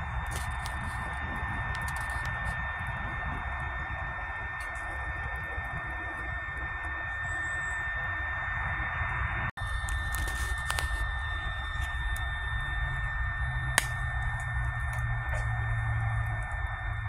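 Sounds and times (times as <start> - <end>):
stove fan whirring: 0.0 - 17.0
burning fuel clicks and pop: 0.2 - 2.6, 9.8 - 11.1, 13.7 - 15.6.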